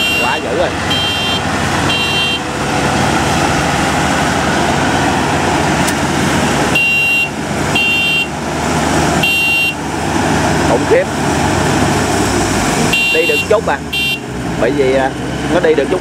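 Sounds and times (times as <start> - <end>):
short high beeps: 0.0 - 2.4, 6.8 - 8.3
diesel engines under load: 0.0 - 16.0.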